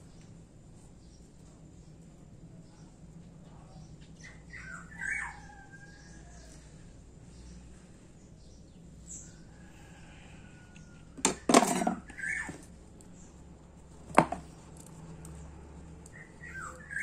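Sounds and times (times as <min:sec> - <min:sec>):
bird squawking: 0:04.2 - 0:05.6, 0:12.1 - 0:12.6.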